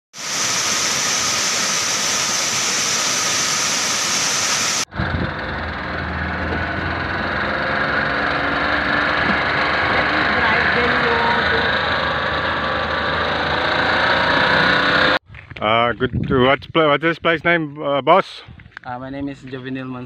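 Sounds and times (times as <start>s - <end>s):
engine humming: 0.2s - 15.2s.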